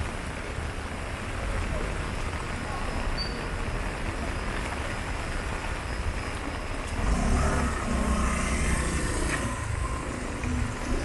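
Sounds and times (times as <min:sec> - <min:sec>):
rain hiss: 0:00.0 - 0:11.0
vehicle engine rumble: 0:00.0 - 0:11.0.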